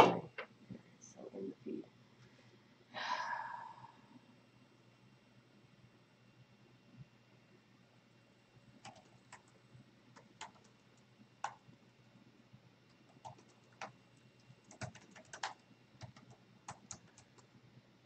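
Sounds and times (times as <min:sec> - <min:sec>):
typing on computer keyboard: 0:08.8 - 0:11.7, 0:12.9 - 0:17.5.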